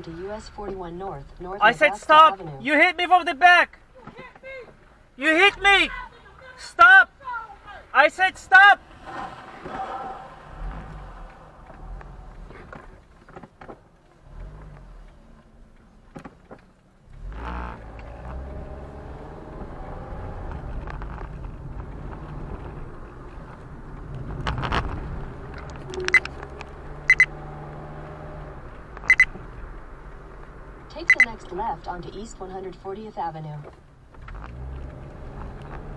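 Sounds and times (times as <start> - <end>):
car engine and road noise: 0.0 - 35.9
sharp clicks: 25.5 - 27.3.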